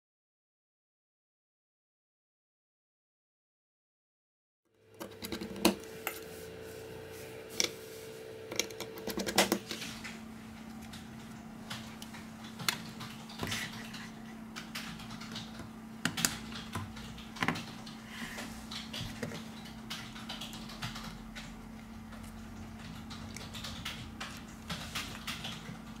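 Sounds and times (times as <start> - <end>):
steady hum: 4.7 - 26.0
screwdriver and phone parts clicking: 8.5 - 9.8.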